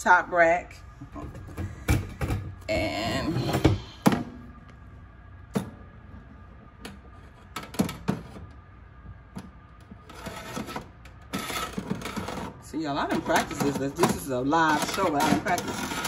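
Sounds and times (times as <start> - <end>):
metal rack scraping oven rails: 10.0 - 16.0.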